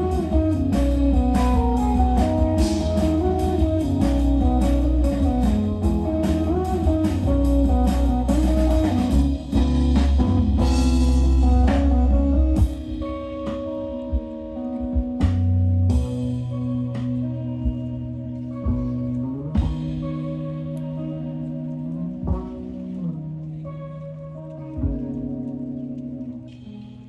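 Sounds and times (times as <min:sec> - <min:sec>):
drum hits: 0:00.0 - 0:13.5
live band playing guitar music: 0:00.0 - 0:27.0.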